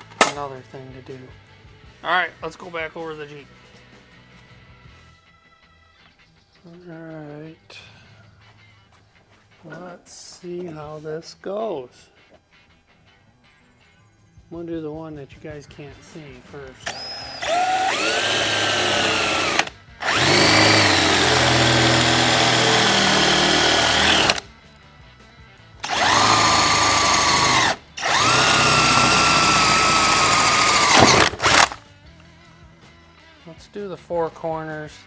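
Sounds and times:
electric drill boring metal: 0:16.8 - 0:24.4, 0:25.8 - 0:31.8.

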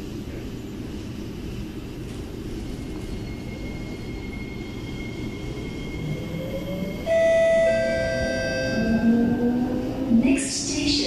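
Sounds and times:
metro train rumbling: 0:00.0 - 0:11.0
chime of steady tones: 0:07.0 - 0:09.1.

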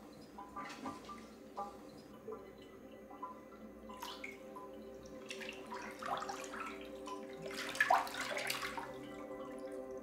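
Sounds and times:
bathwater sloshing and splashing: 0:05.0 - 0:09.8.

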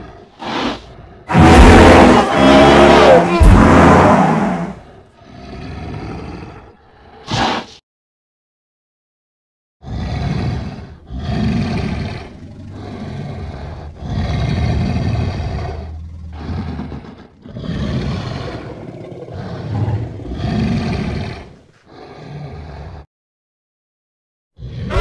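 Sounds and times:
deep rough animal calls: 0:00.0 - 0:07.0, 0:09.8 - 0:23.0, 0:24.6 - 0:25.0.

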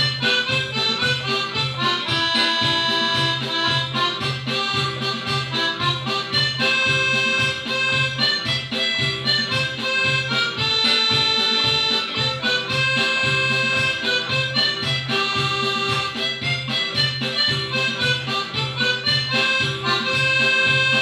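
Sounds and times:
piano accordion playing: 0:00.0 - 0:21.0.

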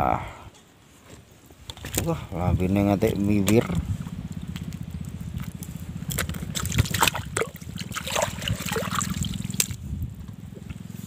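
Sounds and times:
steady low hum: 0:01.3 - 0:11.0
water splashing and trickling: 0:05.3 - 0:09.8.

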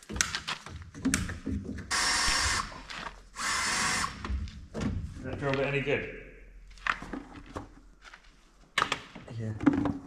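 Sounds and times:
power drill running: 0:01.9 - 0:02.8, 0:03.4 - 0:04.2.

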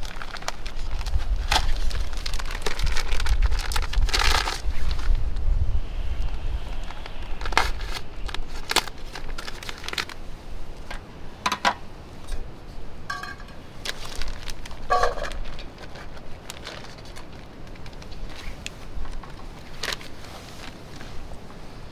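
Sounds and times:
plastic packet crinkling: 0:00.0 - 0:05.2, 0:07.0 - 0:10.2, 0:13.8 - 0:20.8.

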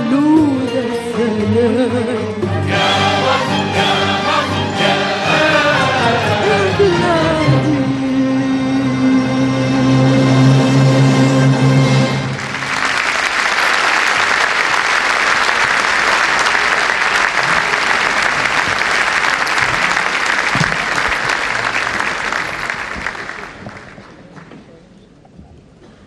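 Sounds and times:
audience applauding: 0:12.2 - 0:24.6.

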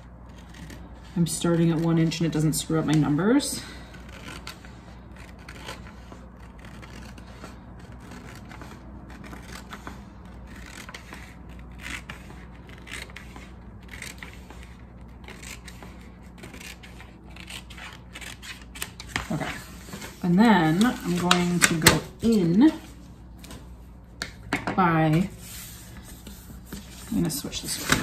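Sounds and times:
scissors snipping paper: 0:00.3 - 0:19.6.

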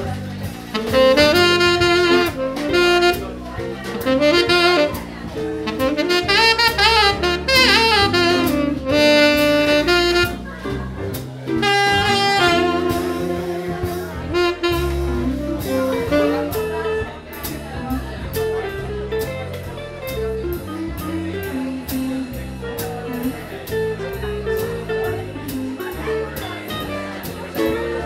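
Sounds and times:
jazz-blues band: 0:00.0 - 0:28.0
saxophone solo: 0:00.6 - 0:17.3.

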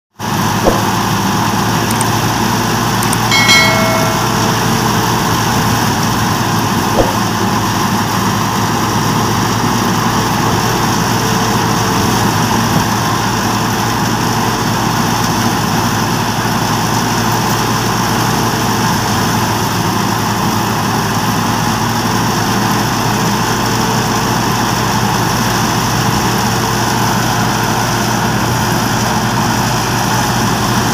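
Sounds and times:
tractor diesel engine under load: 0:00.1 - 0:30.9
threshing machine drone: 0:00.2 - 0:30.9
brief pitched tone: 0:03.0 - 0:06.1.

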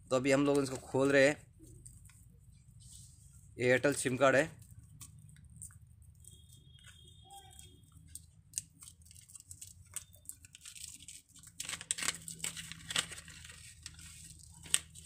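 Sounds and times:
paper tearing and crinkling: 0:05.7 - 0:15.0.

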